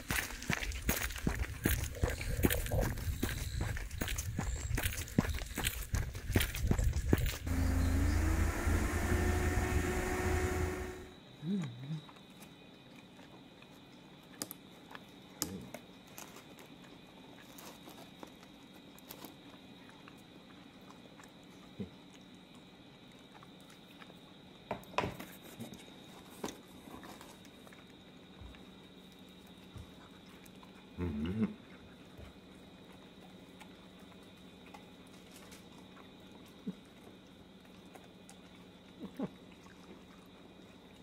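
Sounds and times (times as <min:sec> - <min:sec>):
outdoor steady hum: 0:00.0 - 0:11.4
short wavering whine: 0:07.4 - 0:11.2.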